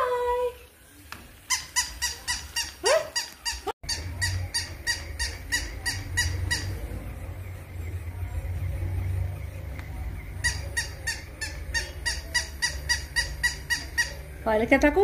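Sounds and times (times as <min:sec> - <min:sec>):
low motor hum: 0:06.3 - 0:10.5.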